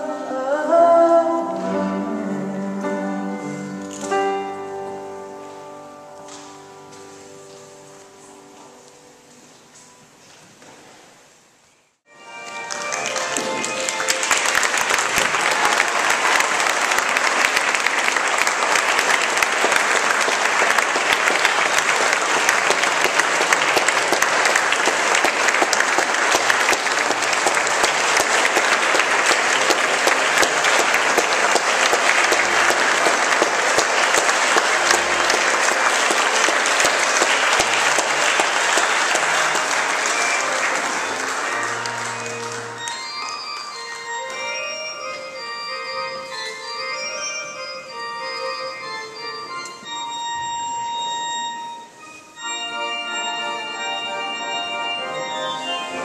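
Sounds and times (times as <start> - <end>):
congregation applauding: 12.1 - 47.7.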